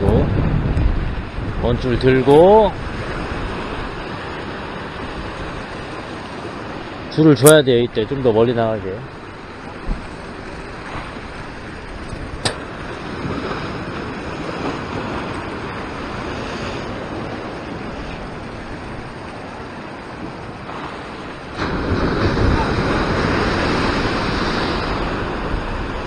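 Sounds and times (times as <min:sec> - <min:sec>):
wind on microphone: 0:00.0 - 0:07.9, 0:09.1 - 0:26.0
surf breaking on rocks: 0:00.0 - 0:26.0
sharp click: 0:12.1 - 0:12.7.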